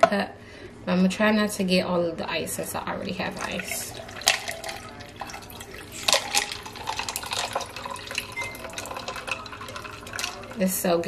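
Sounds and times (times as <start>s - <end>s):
iced coffee pouring and splashing: 3.2s - 10.8s
ice clinking against metal shaker: 3.4s - 10.6s.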